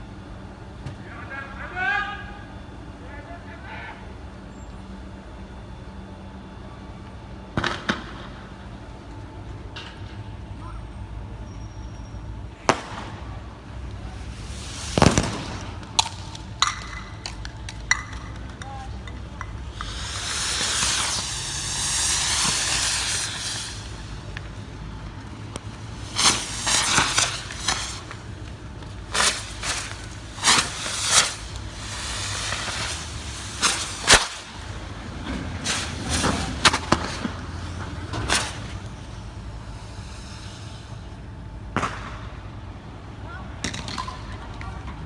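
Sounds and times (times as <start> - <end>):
loud sharp bursts: 12.6 - 16.6, 19.6 - 24.3, 25.9 - 28.4, 29.0 - 35.0
rushing hiss: 14.1 - 15.8, 19.7 - 24.4, 25.9 - 28.2, 29.1 - 34.7, 35.5 - 37.2, 39.6 - 41.0
loud bang: 14.8 - 15.9
sharp cracks and pops: 15.0 - 23.6, 25.5 - 34.7.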